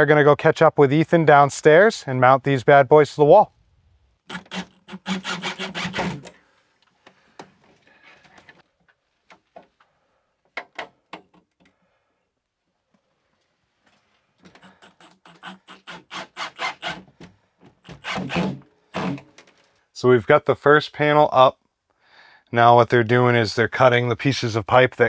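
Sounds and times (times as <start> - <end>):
cordless drill driving screws: 4.3 - 6.4, 14.6 - 17.1, 17.8 - 19.3.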